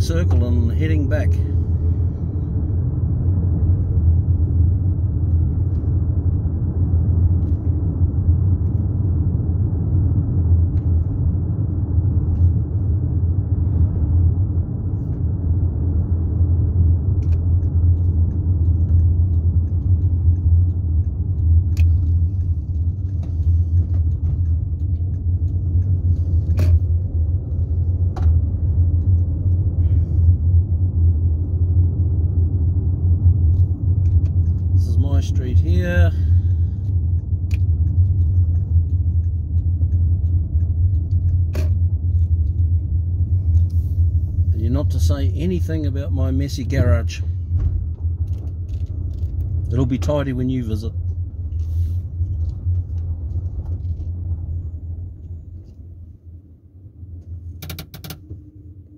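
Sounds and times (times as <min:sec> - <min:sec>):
car engine and road noise: 0:00.0 - 0:58.9.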